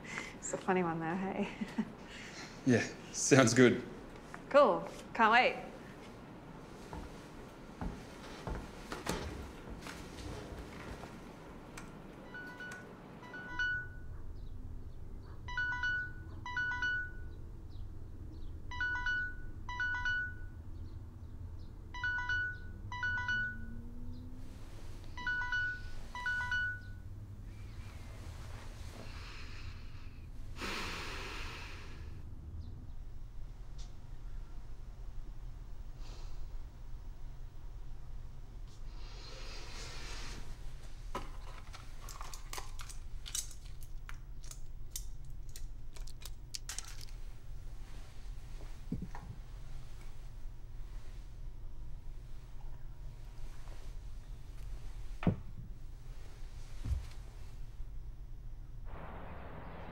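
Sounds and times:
low steady hum: 0.0s - 30.7s, 31.4s - 39.4s, 40.2s - 59.9s
electronic alert chime melody: 15.5s - 17.2s.

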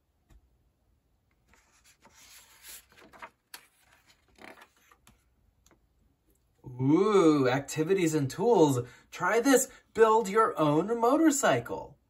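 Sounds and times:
book page rustling: 1.4s - 5.8s.

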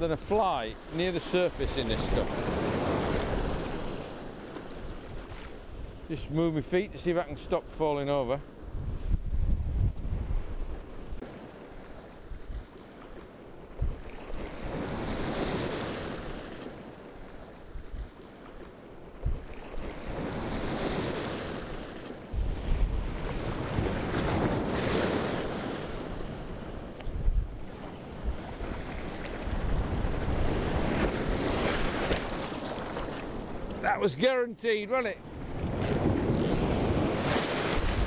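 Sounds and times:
sea waves washing in: 0.0s - 38.0s
wind buffeting microphone: 8.5s - 11.6s, 13.6s - 16.5s, 19.0s - 34.0s, 35.2s - 38.0s.

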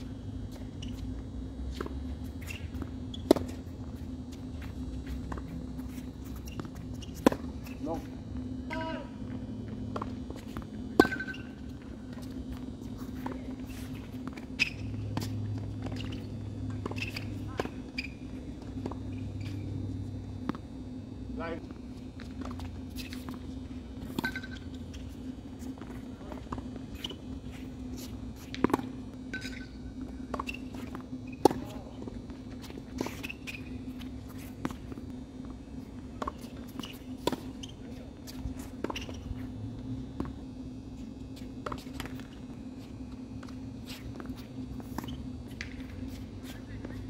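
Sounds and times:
tennis balls bouncing on court: 0.0s - 8.1s, 8.7s - 20.9s, 21.7s - 40.5s, 41.4s - 42.6s, 43.4s - 47.0s
steady low hum: 0.0s - 47.0s
tennis balls struck by rackets: 9.9s - 11.6s.

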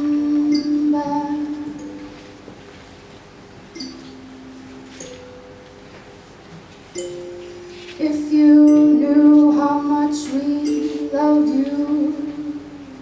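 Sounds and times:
woman singing wordless notes: 0.0s - 2.3s, 7.4s - 13.0s.

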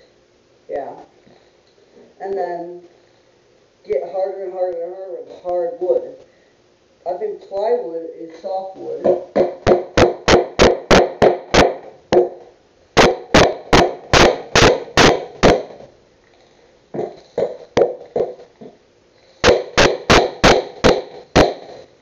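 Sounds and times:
hammer knocking nail into wood: 9.0s - 12.4s, 13.0s - 15.8s, 19.4s - 21.7s.

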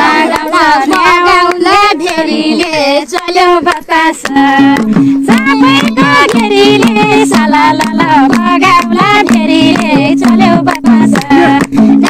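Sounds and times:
woman singing: 0.0s - 12.0s
instrumental accompaniment: 3.7s - 12.0s.

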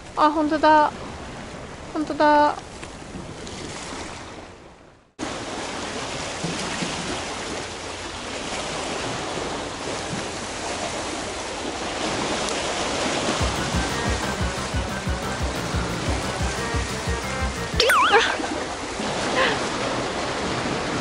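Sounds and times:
surf washing against rocks: 5.2s - 14.8s, 18.4s - 21.0s
music with low beat: 13.4s - 17.9s.

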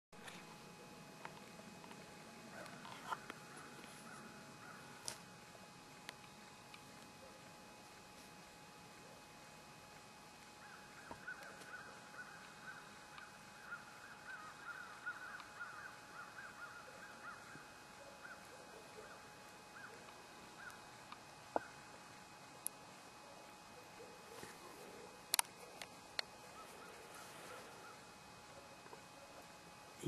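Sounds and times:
distant flock of birds calling: 2.0s - 6.6s, 10.0s - 22.4s, 23.0s - 29.7s.

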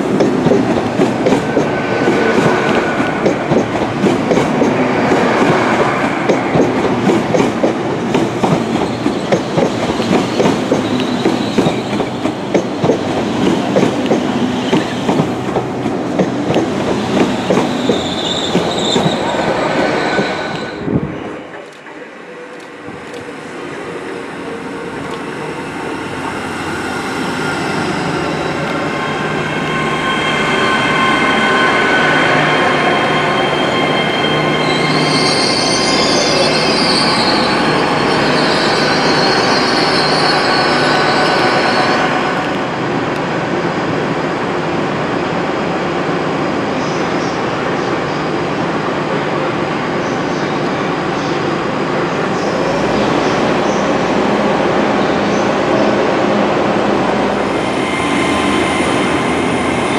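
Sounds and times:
train wheels on rails: 0.0s - 44.1s
high wheel squeal: 10.2s - 11.9s, 17.4s - 20.8s, 25.4s - 42.5s, 57.4s - 59.9s.

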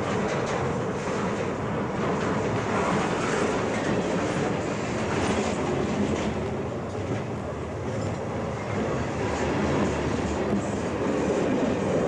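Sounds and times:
steel train wheels rolling on rails: 0.0s - 12.0s.

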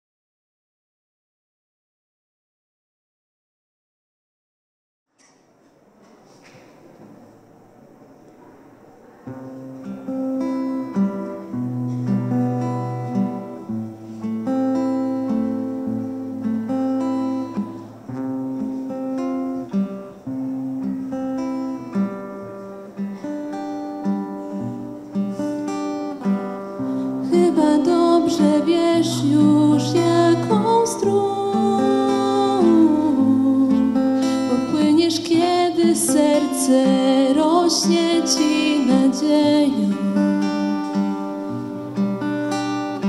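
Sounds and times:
acoustic guitar with held notes: 9.0s - 43.0s.

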